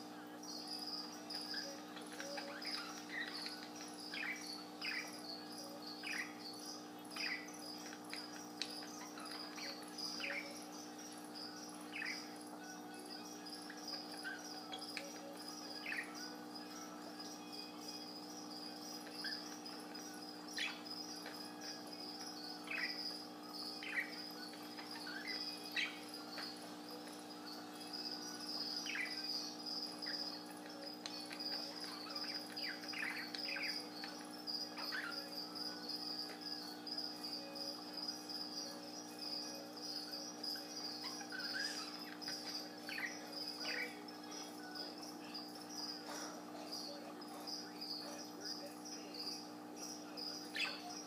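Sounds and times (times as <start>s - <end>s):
low electrical hum: 0.0s - 51.0s
budgerigar chirping: 1.2s - 10.7s, 11.9s - 12.4s, 13.6s - 16.3s, 20.5s - 26.6s, 28.4s - 30.4s, 31.2s - 36.6s, 40.4s - 45.0s, 50.4s - 51.0s.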